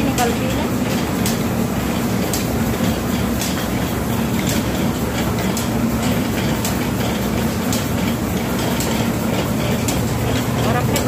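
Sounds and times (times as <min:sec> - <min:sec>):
machine clacking: 0:00.0 - 0:11.0
oil expeller mechanical hum: 0:00.0 - 0:11.0.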